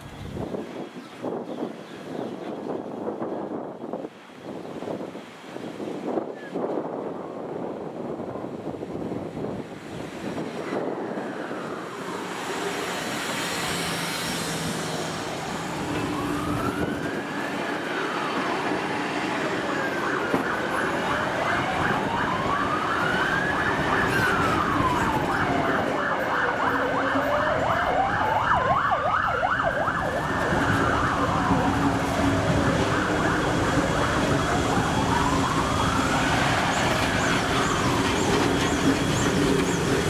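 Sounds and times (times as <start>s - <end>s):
siren wailing: 10.7s - 14.0s, 15.1s - 40.0s.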